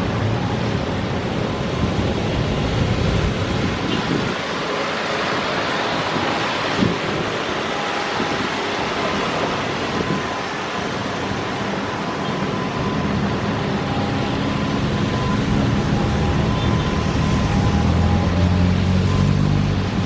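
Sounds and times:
cars passing with tyre hiss: 0:00.0 - 0:20.0
fountain splashing: 0:00.0 - 0:20.0
truck engine hum: 0:00.0 - 0:20.0.

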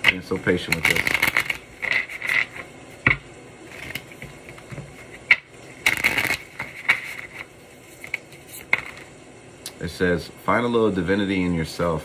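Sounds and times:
cards riffling and snapping: 0:00.0 - 0:09.1.

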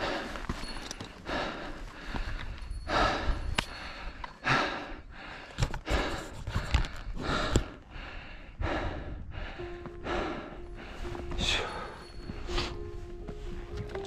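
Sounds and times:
person breathing hard: 0:00.0 - 0:12.9.

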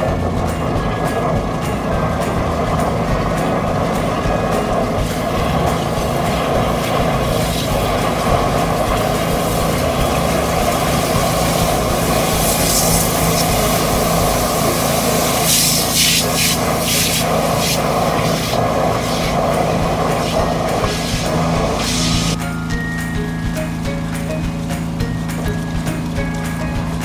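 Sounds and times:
sewage rushing: 0:00.0 - 0:22.4
drain-jetting machine running: 0:00.0 - 0:27.0
bursts of hiss: 0:01.0 - 0:22.4.

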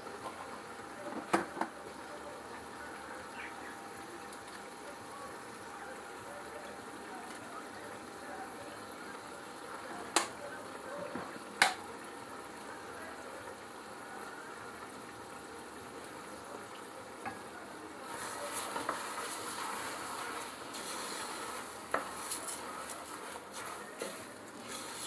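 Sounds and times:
rice sizzling in oil: 0:00.0 - 0:25.0
stirring scratching in pot: 0:18.0 - 0:25.0.

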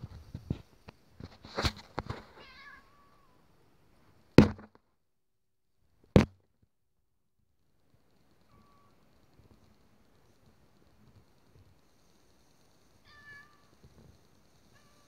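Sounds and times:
cat meowing: 0:02.4 - 0:03.4, 0:08.5 - 0:08.9, 0:13.0 - 0:13.8, 0:14.7 - 0:15.0
loud sharp thumps: 0:04.4 - 0:04.8.

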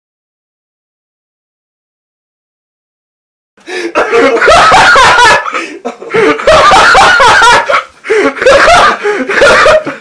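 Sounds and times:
loud laughter: 0:03.8 - 0:10.0.

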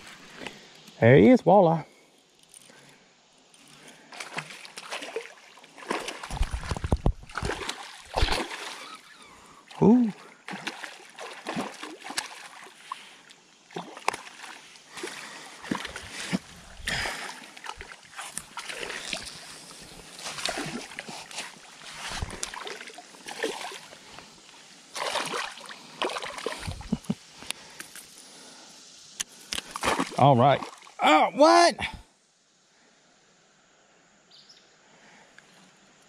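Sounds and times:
fish splashing in water: 0:04.1 - 0:09.1, 0:10.4 - 0:24.1, 0:24.9 - 0:26.8, 0:29.7 - 0:30.9.

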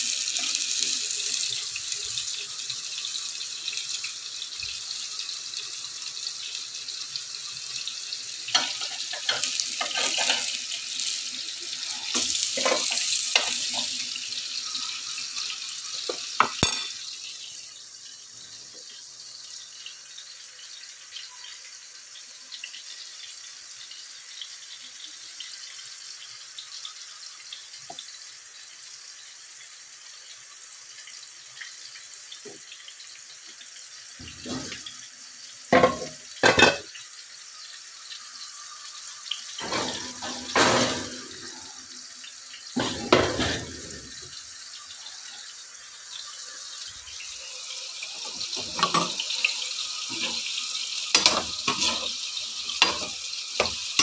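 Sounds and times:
food sizzling in oil: 0:00.0 - 0:54.0.

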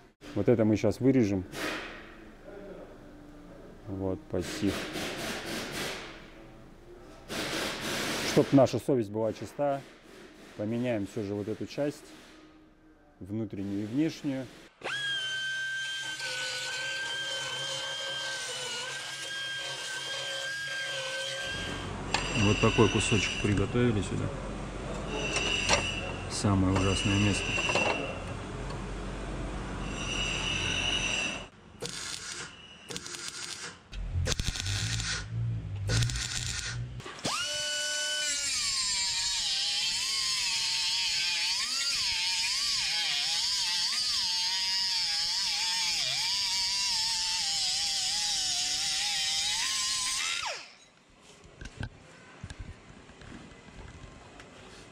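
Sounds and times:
pneumatic grinder whining on steel: 0:14.8 - 0:23.7, 0:29.8 - 0:51.0
welder arc crackling and buzzing: 0:33.0 - 0:37.0.

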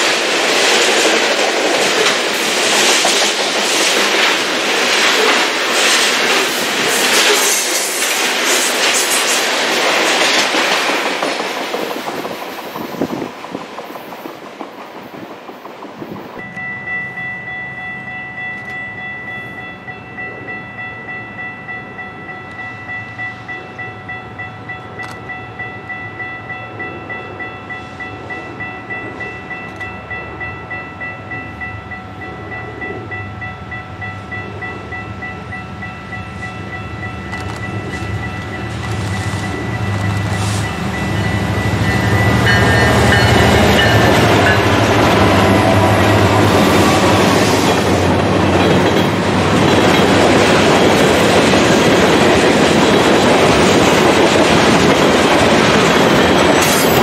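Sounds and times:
diesel locomotive engine rumble: 0:29.4 - 0:57.0.

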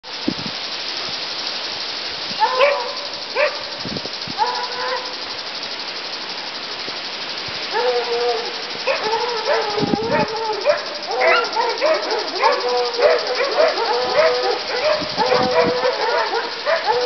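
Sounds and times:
steady hiss: 0:00.0 - 0:17.0
dog barking: 0:02.4 - 0:03.7, 0:04.4 - 0:05.1, 0:08.9 - 0:17.0.

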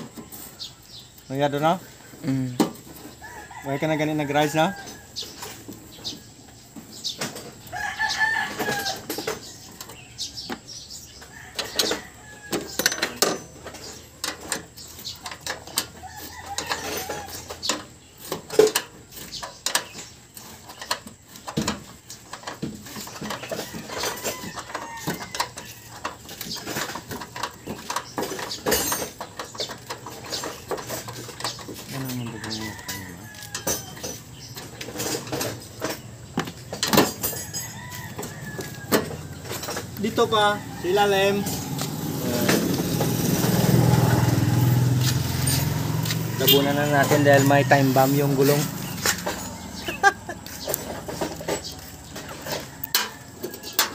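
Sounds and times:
rooster crowing: 0:03.2 - 0:05.2, 0:07.7 - 0:09.2, 0:16.0 - 0:17.5, 0:31.9 - 0:34.2, 0:37.1 - 0:50.6, 0:52.4 - 0:53.9.

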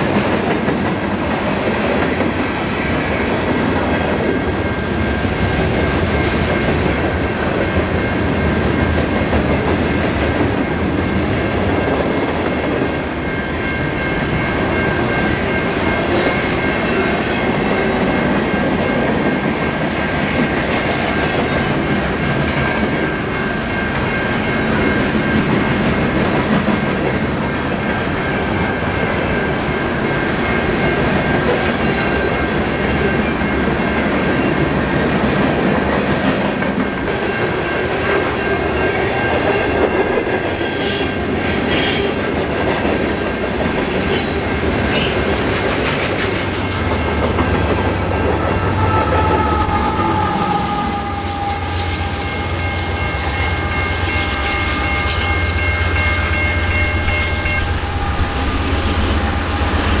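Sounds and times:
diesel locomotive engine hum: 0:00.0 - 1:00.0
freight cars rolling on rails: 0:00.0 - 1:00.0
high squealing tones: 0:48.0 - 0:55.4.

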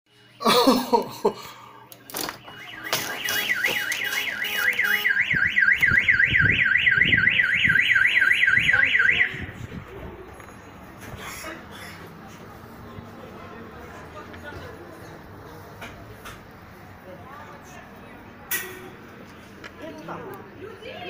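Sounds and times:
car alarm wailing: 0:02.4 - 0:09.5.

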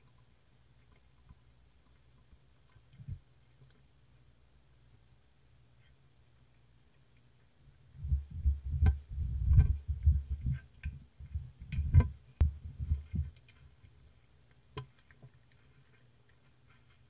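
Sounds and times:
cat eating off plastic: 0:12.5 - 0:17.0.

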